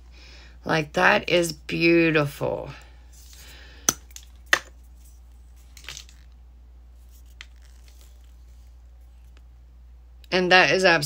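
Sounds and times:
faint handling noises: 0:03.1 - 0:09.6.

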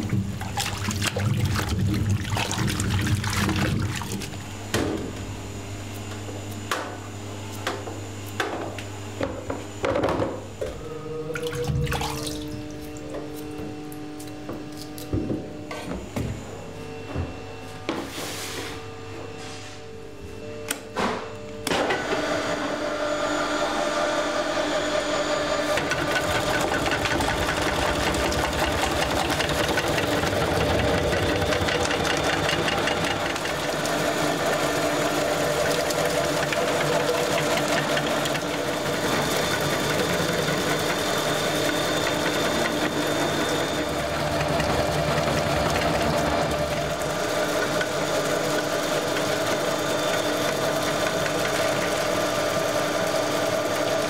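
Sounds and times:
electric motor hum: 0:22.1 - 0:54.0.

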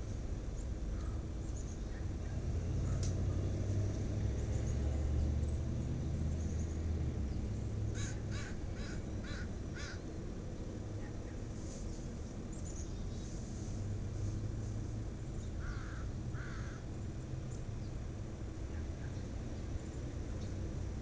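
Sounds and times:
steady low rumble: 0:00.0 - 0:04.7
crow cawing: 0:08.0 - 0:10.0, 0:15.6 - 0:16.9.

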